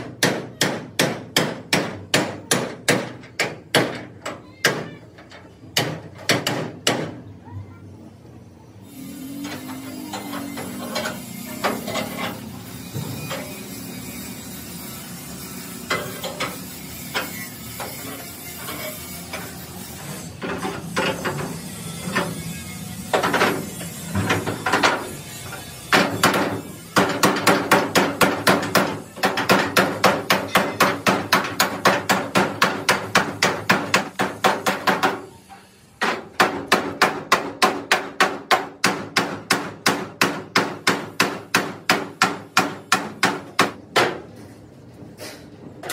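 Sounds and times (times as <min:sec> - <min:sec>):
hammer beating steel: 0:00.0 - 0:05.0, 0:25.8 - 0:35.4, 0:36.0 - 0:44.3.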